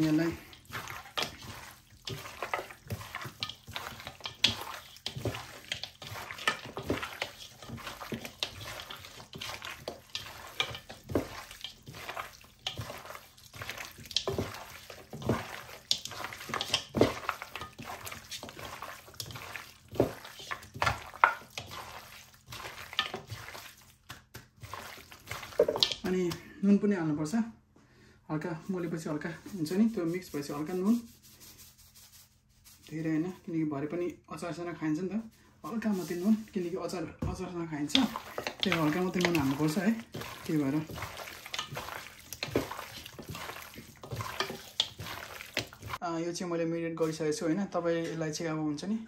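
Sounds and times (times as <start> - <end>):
hands squelching meat in marinade: 0.0 - 26.3, 37.8 - 46.0.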